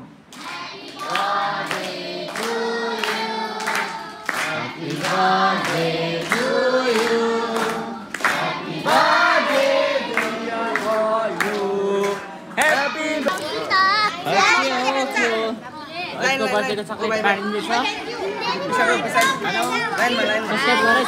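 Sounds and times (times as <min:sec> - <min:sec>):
children clapping: 0:00.3 - 0:13.6, 0:19.2 - 0:20.2.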